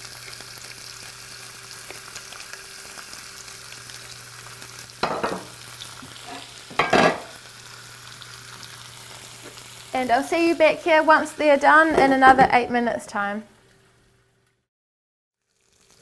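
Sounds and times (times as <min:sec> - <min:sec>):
meat sizzling in oil: 0:00.0 - 0:11.9, 0:15.4 - 0:16.0
pepper grinder set down: 0:06.3 - 0:07.3.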